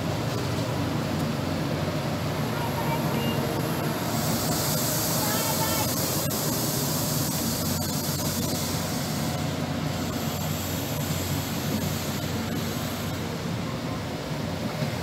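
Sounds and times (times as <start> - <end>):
diesel train engine drone: 0.0 - 15.0
train coaches rolling past: 0.0 - 15.0
high hiss: 2.7 - 13.2.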